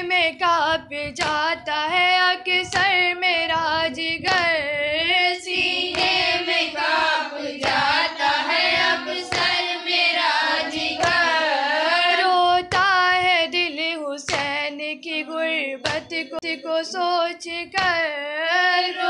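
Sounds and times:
woman singing a lament: 0:00.0 - 0:07.0, 0:10.7 - 0:19.0
sharp beat: 0:05.4 - 0:11.5.

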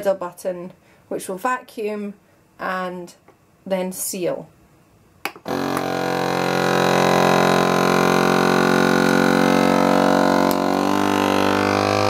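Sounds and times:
vacuum sealer pump humming: 0:05.4 - 0:12.0.

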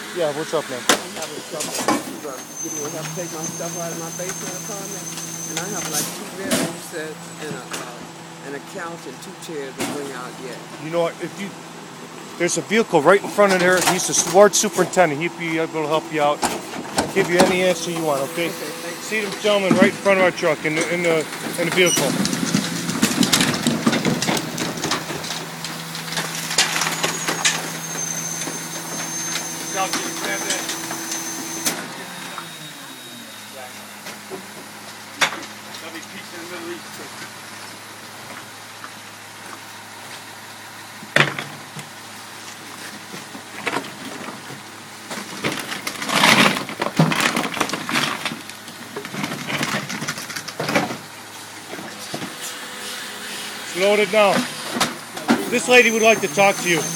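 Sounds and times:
garbage truck idling: 0:00.0 - 0:56.9
loud cracking and crushing: 0:19.1 - 0:27.9, 0:43.3 - 0:52.4
debris crunching and splintering: 0:19.2 - 0:27.7, 0:45.1 - 0:51.2
trash knocking and clattering: 0:20.7 - 0:27.7, 0:43.1 - 0:51.1.

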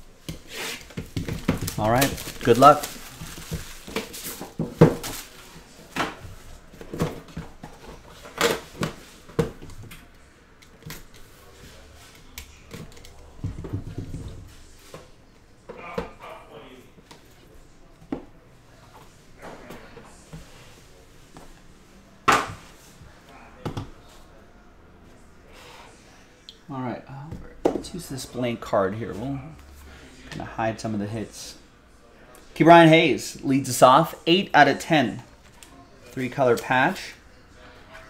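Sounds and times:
plastic shrink wrap crinkling: 0:00.8 - 0:05.4.

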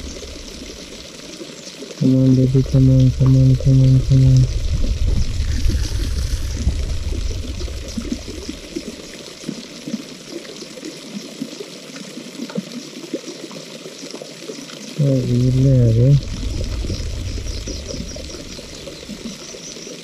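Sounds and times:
low rumble: 0:00.0 - 0:01.1, 0:02.1 - 0:09.0, 0:15.0 - 0:19.7
water trickling and lapping: 0:00.0 - 0:20.0.

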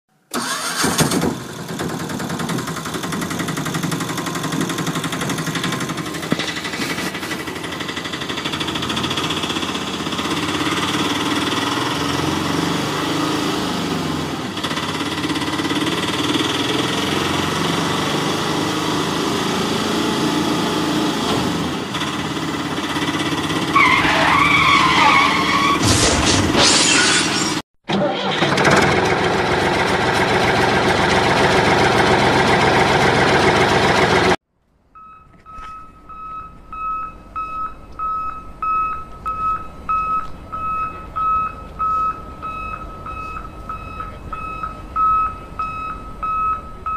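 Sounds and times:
auto-rickshaw engine running: 0:00.3 - 0:25.8, 0:27.9 - 0:34.4
loud clatter: 0:00.9 - 0:09.7.

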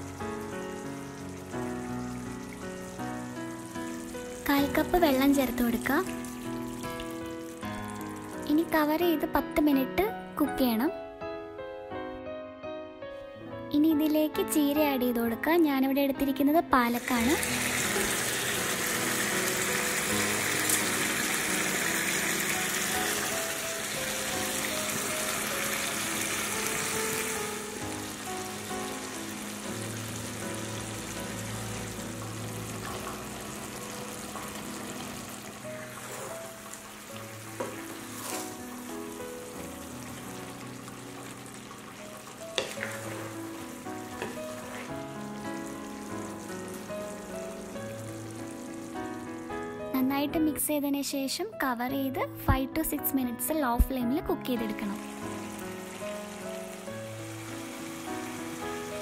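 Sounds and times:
curry bubbling and sizzling in pan: 0:00.0 - 0:08.8, 0:17.0 - 0:49.4, 0:54.8 - 0:59.0
soft background music: 0:00.0 - 0:59.0.

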